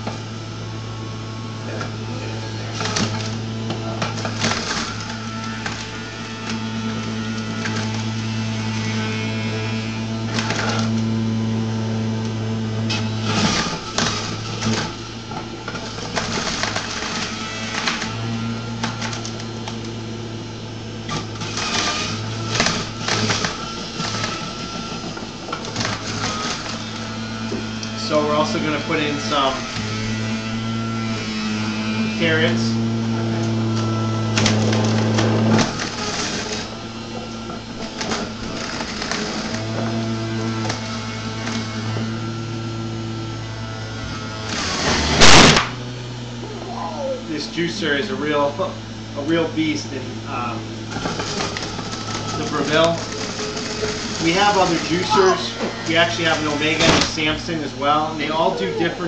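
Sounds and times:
juicer grinding carrots: 0.0s - 59.0s
juicer motor hum: 0.0s - 59.0s
celery crunching and grinding: 50.4s - 58.6s.

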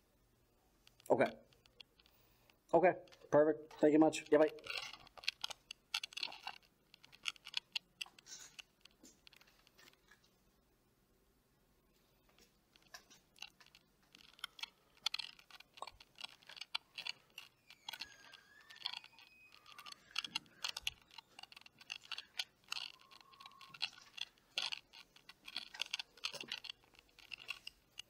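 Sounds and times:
faint clicking and crackling: 0.7s - 10.4s, 11.9s - 28.0s
faint squeaky tones: 14.2s - 28.0s.

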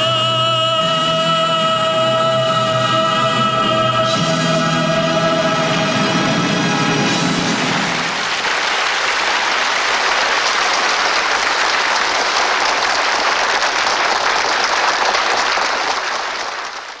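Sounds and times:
large audience applauding: 5.9s - 17.0s.

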